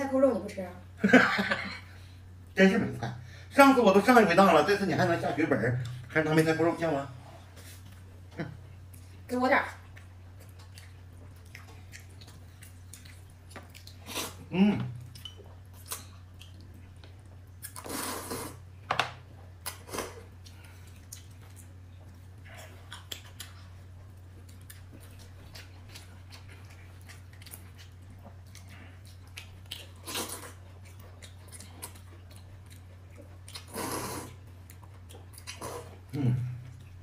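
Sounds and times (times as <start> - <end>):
steady low hum: 0.0 - 37.0
person chewing: 9.8 - 18.7, 19.4 - 37.0.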